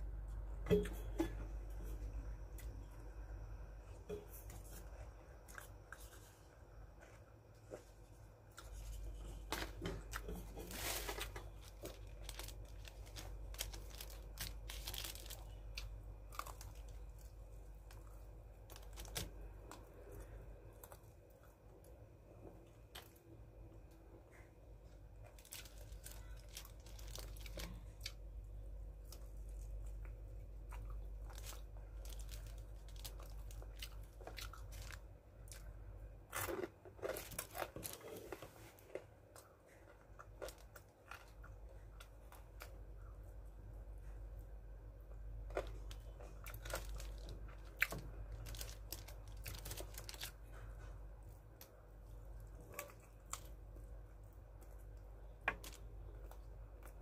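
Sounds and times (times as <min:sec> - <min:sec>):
steady low hum: 0:00.0 - 0:57.0
crunching and chewing fried chicken: 0:01.5 - 0:57.0
paper wrapping crinkling: 0:08.6 - 0:18.1, 0:25.3 - 0:28.2, 0:31.1 - 0:35.0, 0:45.6 - 0:50.8.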